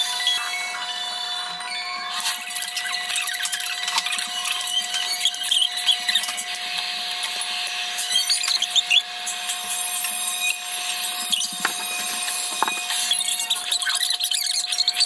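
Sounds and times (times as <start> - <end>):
fork scraping a ceramic plate: 11.0 - 14.2
squeaks of metal on ceramic: 11.1 - 15.0.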